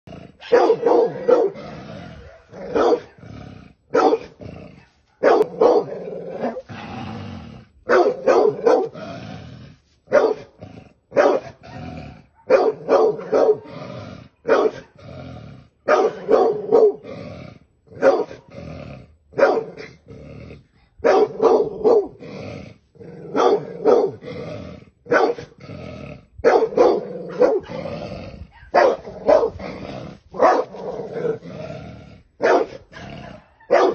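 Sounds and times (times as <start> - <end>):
dog growling: 0.1 - 9.8, 21.6 - 33.6
dog barking: 0.4 - 1.6, 2.2 - 3.2, 3.9 - 4.3, 5.1 - 6.7, 7.9 - 9.0, 10.1 - 10.5, 11.1 - 11.6, 12.3 - 13.7, 14.4 - 15.0, 15.9 - 17.0, 18.0 - 18.4, 19.4 - 19.8, 21.0 - 22.2, 23.3 - 24.2, 25.1 - 25.5, 26.4 - 27.7, 28.5 - 29.6, 30.4 - 31.4, 32.4 - 33.9.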